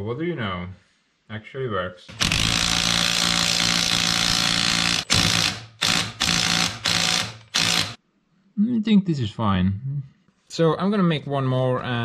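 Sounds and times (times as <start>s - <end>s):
impact wrench hammering: 2.1s - 8.0s.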